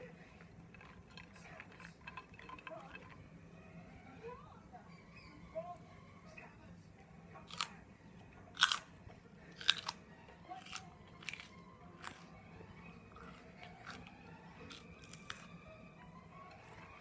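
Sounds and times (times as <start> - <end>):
crunchy food being chewed: 0.0 - 3.5, 7.4 - 17.0.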